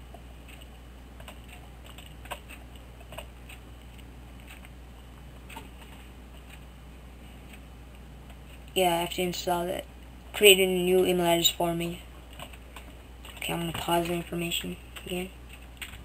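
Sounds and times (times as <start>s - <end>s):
steady low hum: 0.0s - 16.0s
computer mouse clicks: 0.4s - 4.7s.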